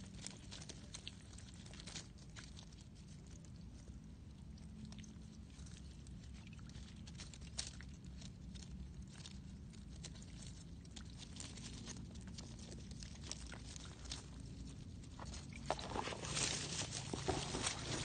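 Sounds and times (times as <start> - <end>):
leaves and mud crackling: 0.0 - 18.0
low steady rumble: 0.0 - 18.0.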